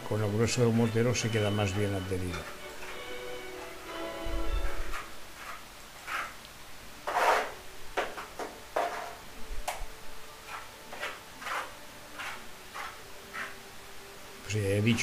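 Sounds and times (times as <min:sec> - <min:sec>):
trowel scraping adhesive: 0:04.9 - 0:06.4, 0:07.0 - 0:07.6, 0:10.5 - 0:13.6
trowel tapping: 0:10.5 - 0:13.6.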